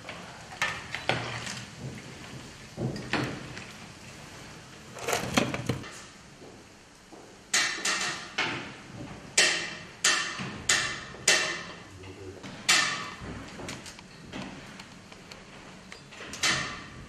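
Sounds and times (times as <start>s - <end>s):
metal trays and utensils clanking: 4.9s - 6.0s.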